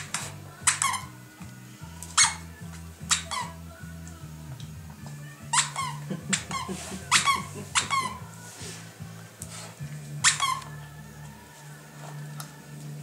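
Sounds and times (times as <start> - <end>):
background music with bass: 0.0 - 13.0
squeaky toy squeaks: 0.6 - 1.2, 2.1 - 3.6, 5.5 - 8.3, 10.2 - 10.8.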